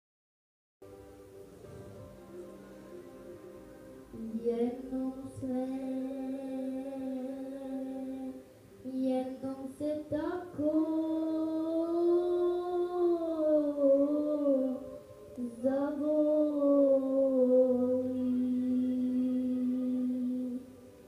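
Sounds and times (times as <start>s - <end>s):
boy singing: 4.1s - 20.8s.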